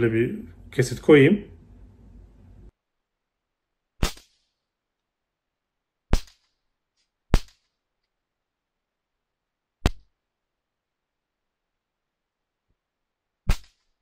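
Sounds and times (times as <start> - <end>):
pistol shots: 4.0 - 4.4, 6.1 - 6.5, 7.3 - 7.7.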